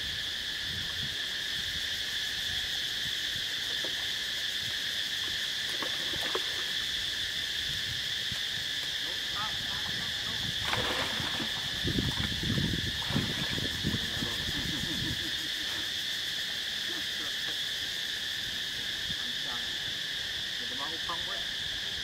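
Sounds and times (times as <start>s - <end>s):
high-pitched insect drone: 0.0s - 22.0s
water splashing and sloshing: 3.7s - 17.6s.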